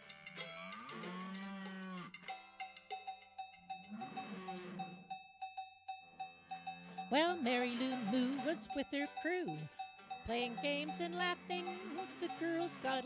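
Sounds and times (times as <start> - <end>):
cowbell in music track: 0.0 - 13.0
cow mooing: 0.8 - 2.2, 3.9 - 5.1, 10.5 - 13.0.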